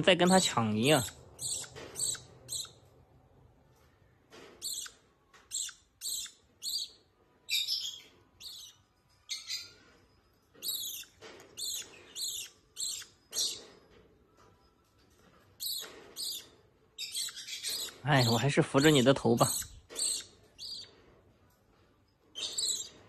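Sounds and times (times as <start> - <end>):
bird chick begging calls: 0.3 - 2.8, 4.6 - 4.9, 10.6 - 13.6, 17.0 - 20.9.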